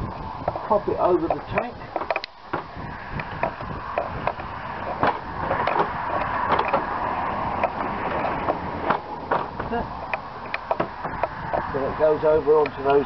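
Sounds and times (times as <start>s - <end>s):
small clicks and knocks: 1.2s - 6.9s, 10.1s - 11.6s.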